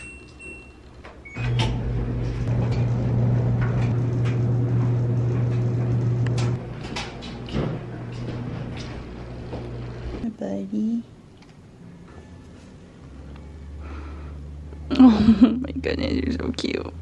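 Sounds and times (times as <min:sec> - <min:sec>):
washing machine humming: 0:00.0 - 0:10.2.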